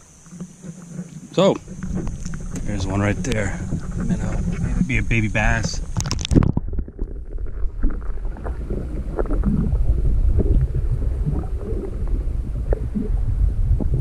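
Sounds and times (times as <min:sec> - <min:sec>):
muffled underwater rumble: 0:00.0 - 0:14.0
camera splashing into water: 0:05.9 - 0:06.9.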